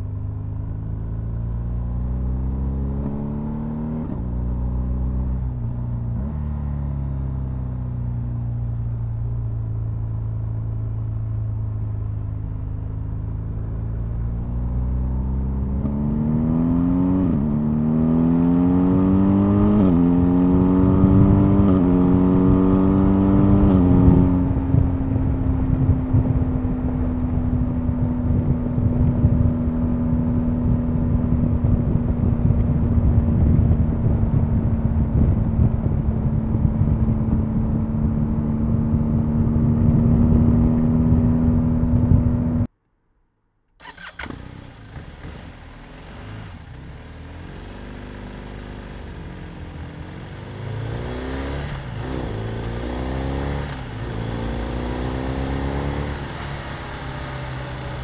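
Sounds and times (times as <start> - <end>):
muffled motorcycle engine accelerating: 0.0 - 42.7, 43.8 - 58.0
heavy wind noise: 18.8 - 42.7.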